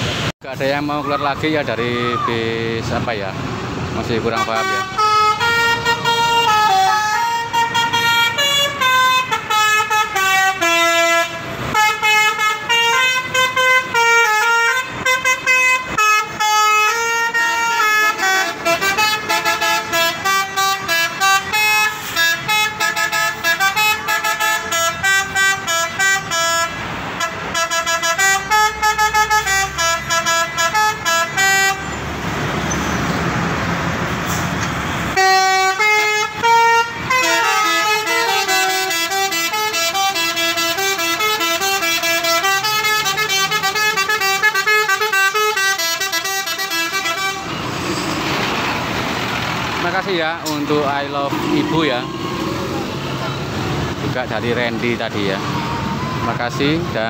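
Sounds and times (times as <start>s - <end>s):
melodic bus horn: 4.1s - 32.2s, 34.3s - 48.2s, 49.8s - 53.9s.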